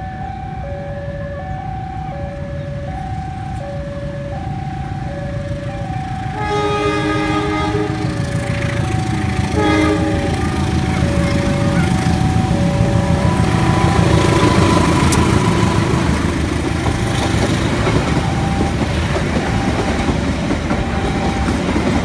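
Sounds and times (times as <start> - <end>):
level crossing alarm two-tone: 0.0 - 22.0
low train rumble: 0.0 - 22.0
locomotive horn blast: 6.3 - 17.5.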